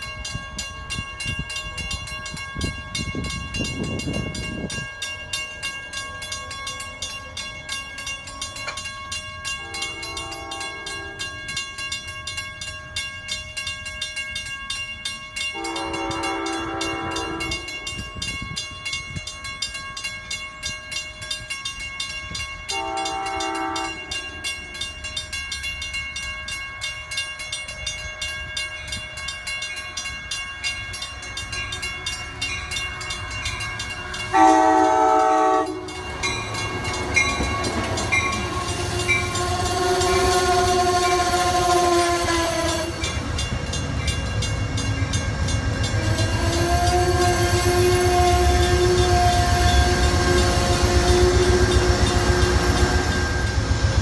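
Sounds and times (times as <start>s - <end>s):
crossing bells ringing: 0.0s - 54.0s
train wheels rumbling on rail: 0.0s - 54.0s
train horn: 9.6s - 11.5s, 15.5s - 17.9s, 22.7s - 24.7s, 34.3s - 36.0s, 38.2s - 43.1s, 46.0s - 53.5s.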